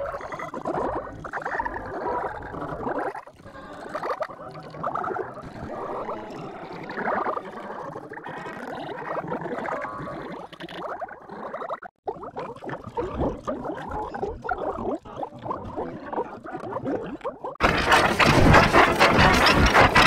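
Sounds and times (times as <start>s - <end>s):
garbled warbling cartoon soundtrack: 5.1s - 10.0s, 12.8s - 20.0s.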